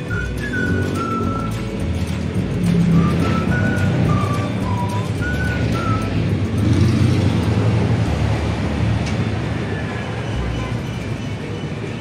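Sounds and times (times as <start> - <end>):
high whistle-like notes: 0.0 - 1.8, 2.8 - 6.8
road traffic rumble: 0.0 - 12.0.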